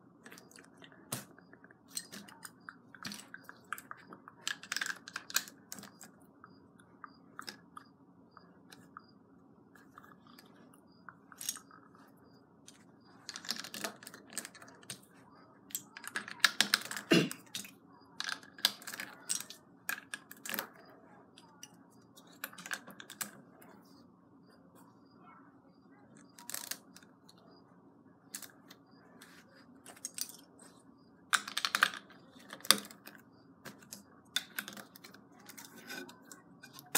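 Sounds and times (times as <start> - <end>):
plastic bricks clicking and clattering: 0.2 - 6.2, 11.3 - 12.0, 12.7 - 20.8, 21.4 - 23.4, 26.2 - 27.1, 28.3 - 30.7, 31.3 - 36.9.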